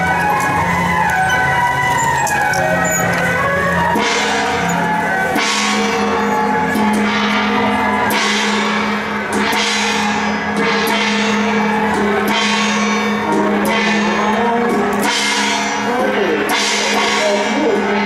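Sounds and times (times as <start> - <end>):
drumming: 0.0 - 15.3
held instrument tones: 0.0 - 18.0
cymbals and gongs crashing: 0.2 - 18.0.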